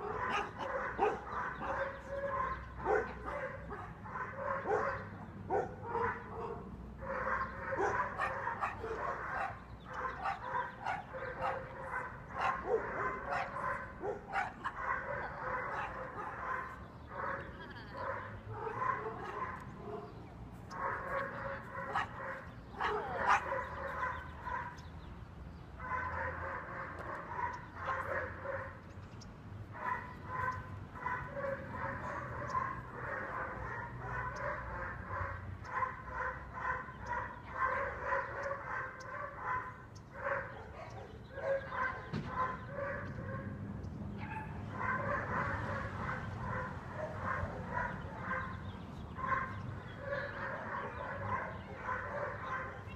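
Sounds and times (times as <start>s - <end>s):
puppy barking and yipping: 0.0s - 16.6s, 29.8s - 43.5s.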